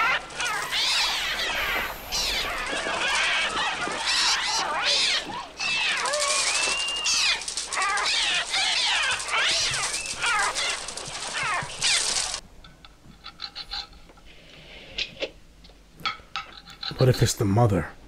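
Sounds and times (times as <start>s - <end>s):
shrill gull cries: 0.0s - 12.4s.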